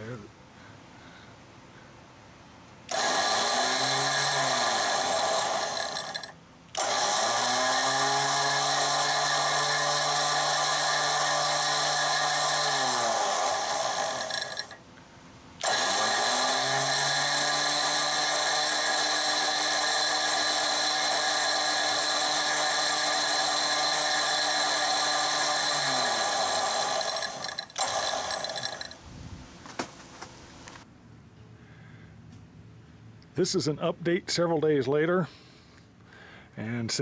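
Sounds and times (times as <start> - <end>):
winch motor whine: 2.9 - 14.8, 15.6 - 29.0.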